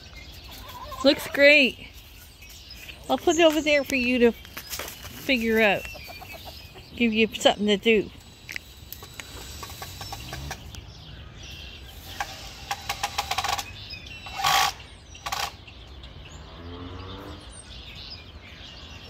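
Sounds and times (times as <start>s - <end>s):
cordless drill bursts: 8.2s - 10.7s, 12.0s - 15.5s
rapid clicks of drill: 8.4s - 10.6s, 12.1s - 13.7s.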